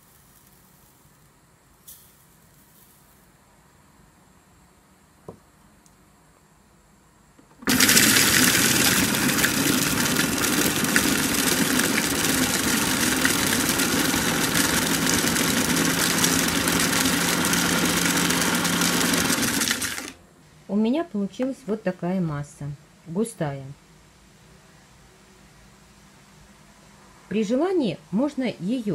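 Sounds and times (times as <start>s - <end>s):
food processor running: 7.6s - 20.2s.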